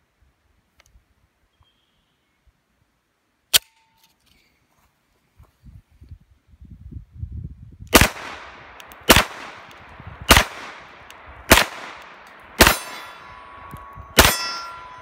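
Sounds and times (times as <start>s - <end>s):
pistol shots echoing: 7.9s - 15.0s
steel plate target ringing: 12.0s - 15.0s.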